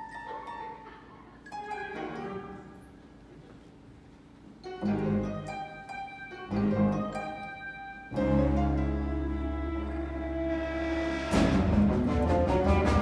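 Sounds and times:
orchestra playing soft passage: 0.0 - 13.0
loud orchestral chords: 4.8 - 5.7, 6.5 - 7.5, 8.1 - 13.0.

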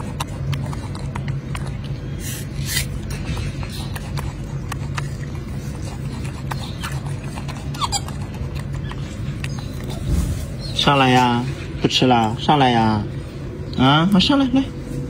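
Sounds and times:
monkey eating clicks: 0.0 - 10.1
steady low hum: 0.0 - 15.0
monkey high squeak: 7.7 - 8.1.

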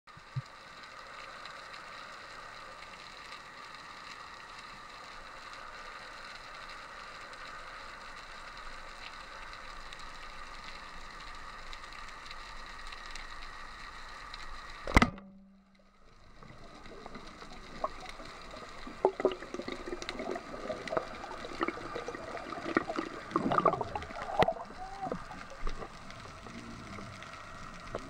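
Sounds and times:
underwater hiss with crackling: 0.1 - 14.9, 15.9 - 28.0.

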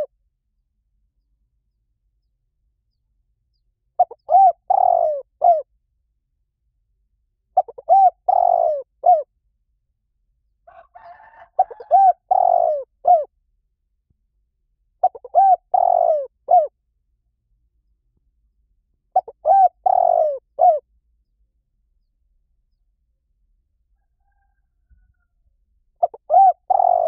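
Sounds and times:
dove cooing: 4.0 - 5.7, 7.6 - 9.3, 10.7 - 13.3, 15.0 - 16.7, 19.1 - 20.8, 26.0 - 27.0.

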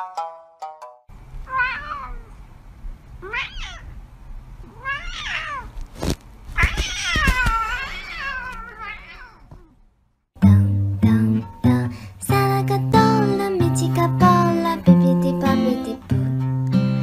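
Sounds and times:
cat meowing: 1.4 - 2.4, 3.2 - 4.0, 4.6 - 5.8, 6.5 - 9.8
sharp handling knocks: 5.9 - 7.9.

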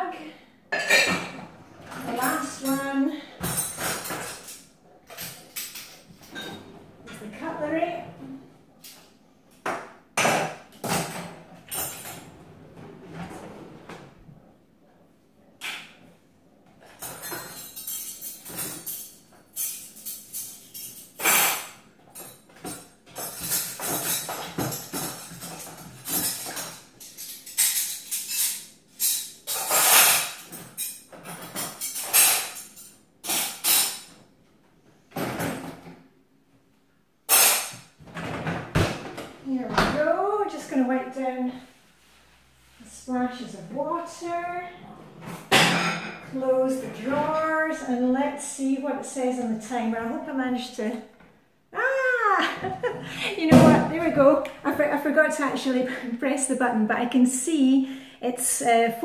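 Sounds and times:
cutlery clinking in drawer: 0.8 - 7.2, 10.2 - 12.4, 16.8 - 34.2, 37.3 - 38.6.

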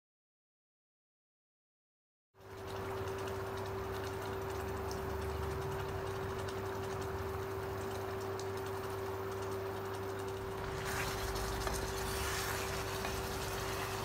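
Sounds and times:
gravy simmering in a pan: 2.4 - 14.0
steady hum: 2.6 - 14.0.

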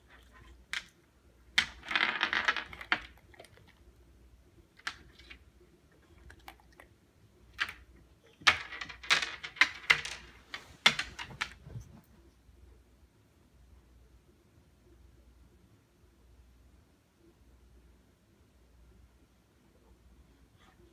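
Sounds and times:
pebbles clattering on a table: 1.6 - 3.4, 7.6 - 11.6.

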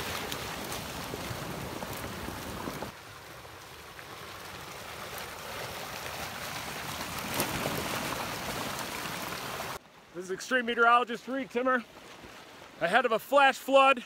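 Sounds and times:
wood cracking: 0.0 - 3.0, 4.0 - 9.8
debris flow rushing: 0.0 - 9.8.

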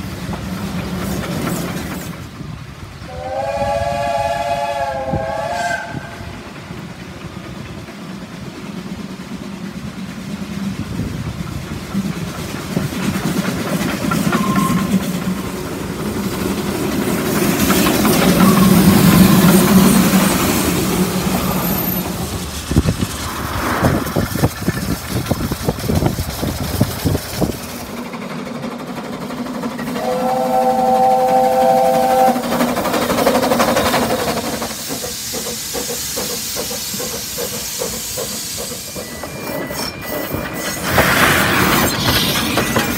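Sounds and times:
sharp steam exhaust beats: 0.0 - 42.9
steam hissing: 0.0 - 42.9
train wheels rumbling on track: 0.0 - 42.9
steam whistle chord: 3.1 - 6.2, 30.0 - 32.5.

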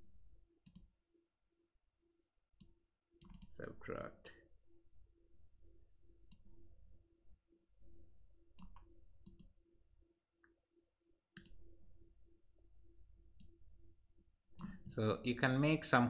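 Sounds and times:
computer mouse clicks: 2.6 - 3.5, 8.6 - 9.5, 11.4 - 11.6.

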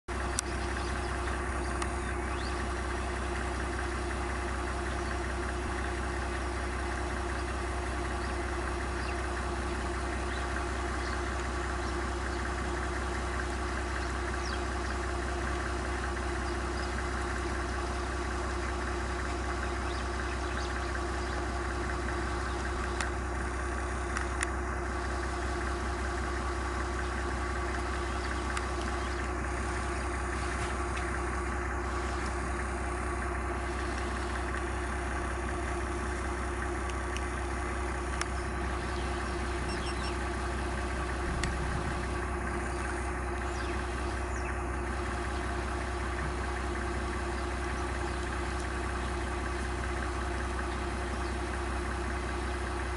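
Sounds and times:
vehicle engine idling: 0.0 - 52.9
faint clicks: 0.3 - 0.8, 1.7 - 2.1, 22.6 - 23.2, 24.1 - 24.6, 33.8 - 34.7, 36.8 - 37.4, 38.0 - 40.0, 41.4 - 42.9, 47.7 - 48.8.

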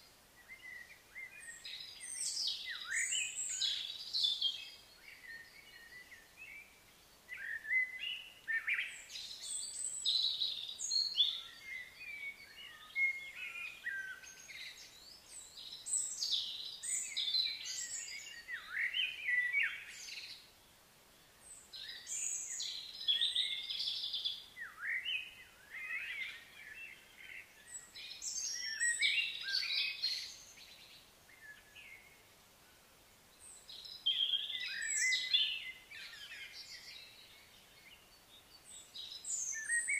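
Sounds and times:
birds chirping and calling: 33.8 - 39.9.

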